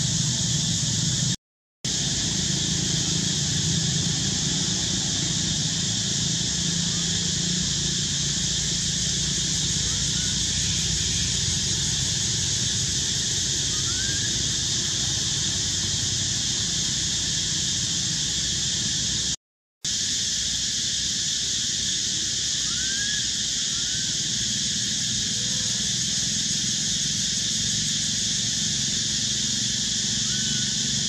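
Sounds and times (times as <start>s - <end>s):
high outdoor hiss: 0.0s - 31.0s
faint rising chirps: 1.9s - 19.3s.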